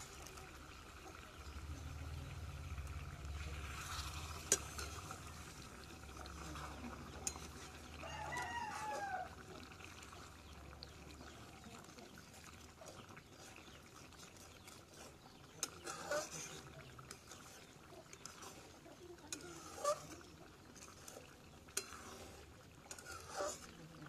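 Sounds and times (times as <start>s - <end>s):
rooster crowing: 8.0s - 9.4s.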